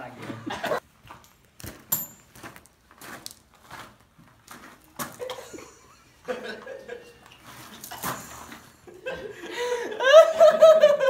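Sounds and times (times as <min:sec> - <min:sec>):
men laughing: 0:00.2 - 0:00.8, 0:05.2 - 0:11.0.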